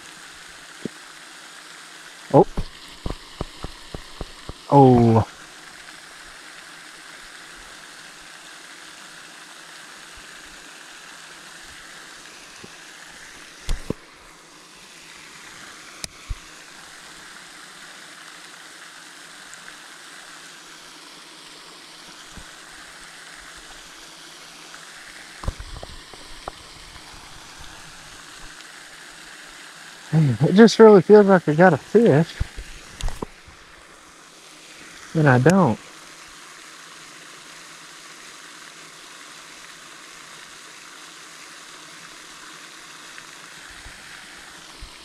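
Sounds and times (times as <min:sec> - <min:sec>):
running water: 0:00.0 - 0:45.0.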